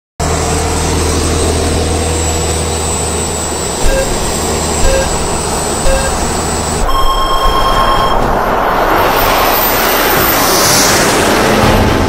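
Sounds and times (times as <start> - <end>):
jet turbine engines whining: 0.4 - 12.0
car engine running: 0.7 - 8.4
countdown beeps: 3.8 - 8.2.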